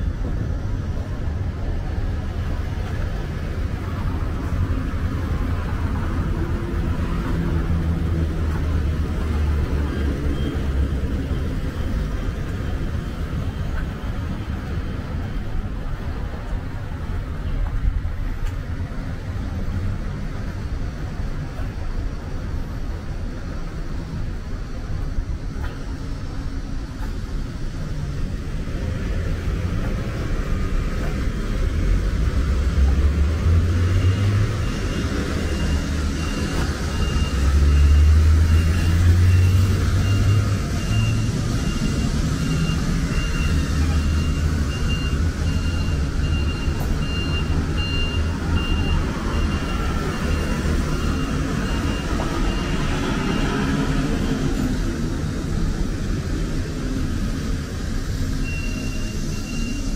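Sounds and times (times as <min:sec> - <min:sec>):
vehicles passing: 0:00.0 - 0:59.9
high pulsing beep: 0:33.9 - 0:53.6, 0:58.4 - 0:59.9.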